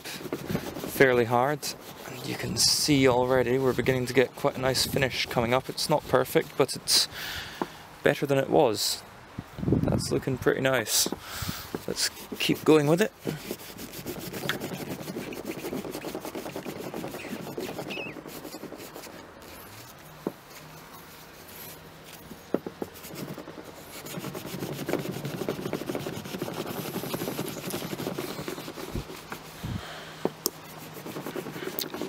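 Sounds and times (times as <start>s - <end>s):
cloth scrubbing metal: 0.0s - 7.0s, 10.8s - 20.6s, 22.7s - 29.7s, 30.4s - 32.0s
small knocks: 22.3s - 23.6s.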